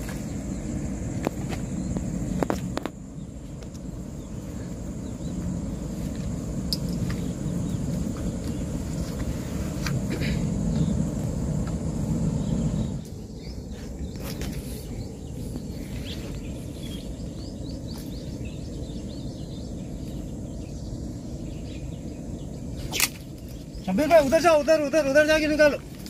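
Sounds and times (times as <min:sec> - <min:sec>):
steady low rumble: 0:00.0 - 0:26.0
faint bird chirps: 0:12.2 - 0:25.7.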